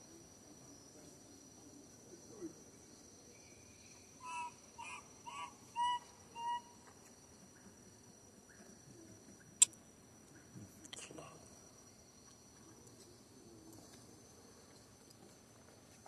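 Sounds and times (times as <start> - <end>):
high insect whine: 0.0 - 16.0.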